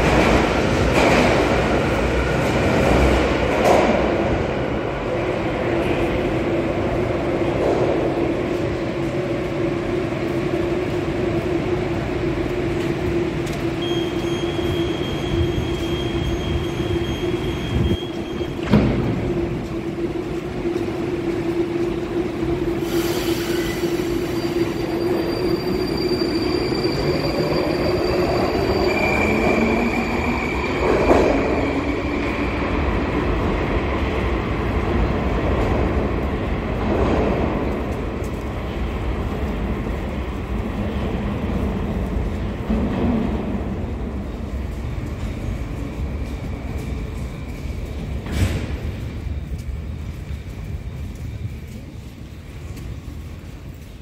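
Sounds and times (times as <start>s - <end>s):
train doors shutting: 12.6s - 32.8s, 44.9s - 49.8s
hiss: 22.8s - 24.1s.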